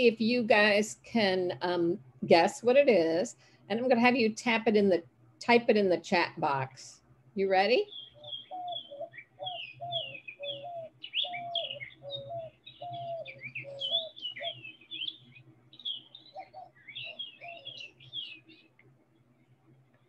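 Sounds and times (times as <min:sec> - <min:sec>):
higher bird chirps: 0:07.8 - 0:18.8
dove hooting coos: 0:08.2 - 0:18.3.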